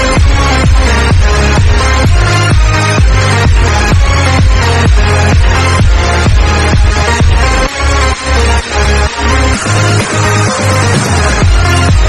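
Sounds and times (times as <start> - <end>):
heavy kick drum: 0.0 - 7.9, 11.0 - 12.0
electronic dance music: 0.0 - 12.0.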